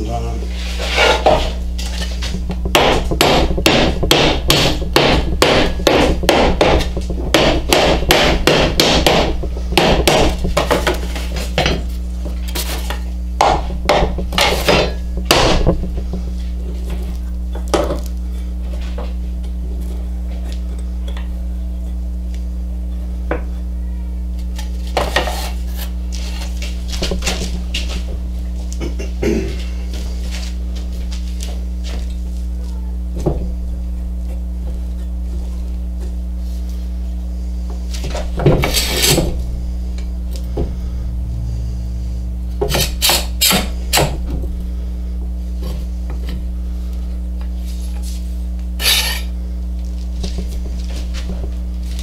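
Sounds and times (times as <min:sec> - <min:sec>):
steady low hum: 0:00.0 - 0:52.0
wooden blocks knocking: 0:02.2 - 0:11.9, 0:13.4 - 0:16.3.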